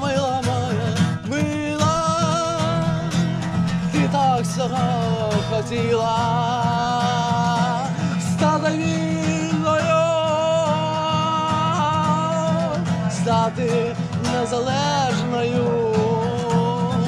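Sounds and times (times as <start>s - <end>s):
musical accompaniment: 1.4s - 7.7s.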